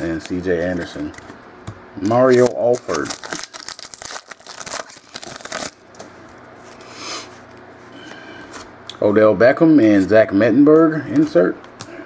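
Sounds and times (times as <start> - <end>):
wrapper crinkling and tearing: 2.0 - 5.9
cards rustling: 2.0 - 6.8.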